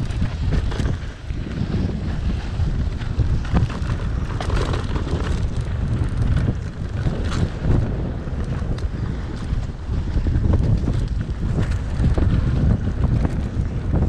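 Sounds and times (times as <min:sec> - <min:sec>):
bike clattering over bumps: 0:00.0 - 0:14.0
wind buffeting microphone: 0:00.0 - 0:14.0.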